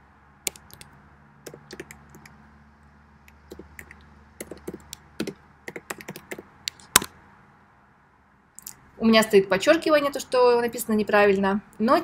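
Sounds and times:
keyboard typing clicks: 0:00.5 - 0:02.4, 0:03.3 - 0:07.1.

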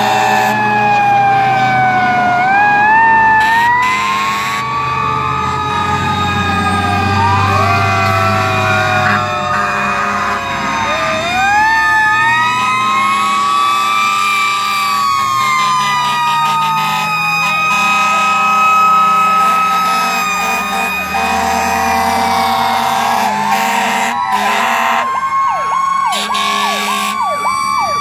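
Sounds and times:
fast-pulsing siren tone: 0:00.0 - 0:28.0
fire truck sirens wailing: 0:00.0 - 0:28.0
truck engines running: 0:00.0 - 0:28.0.

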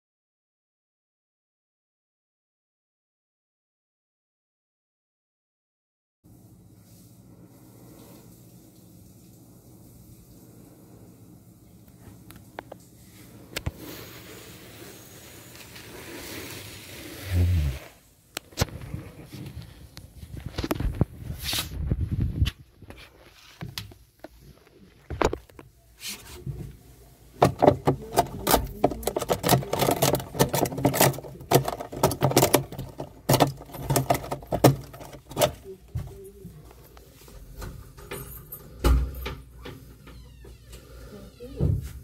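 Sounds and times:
wood and paint crackling and snapping: 0:27.4 - 0:36.3.

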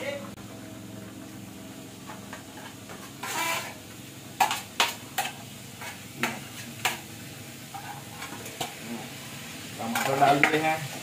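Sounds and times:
spoon scraping a metal plate: 0:03.2 - 0:03.8.

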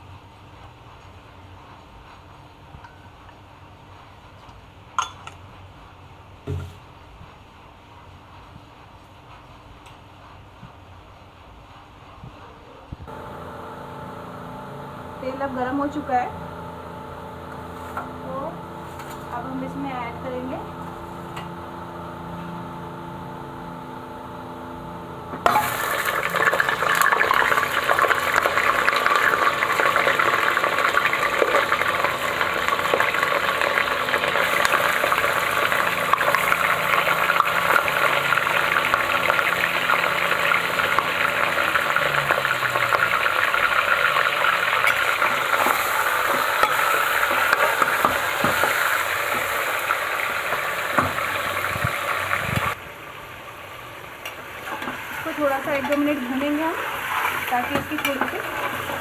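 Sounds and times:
low steady hum: 0:13.0 - 0:43.0
meat sizzling in hot oil: 0:25.4 - 0:52.8, 0:54.8 - 0:59.0.

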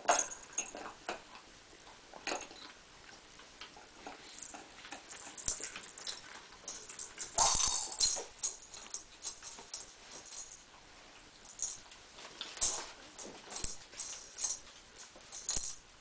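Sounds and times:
claws scrabbling on tile: 0:04.0 - 0:10.7, 0:11.4 - 0:15.8.

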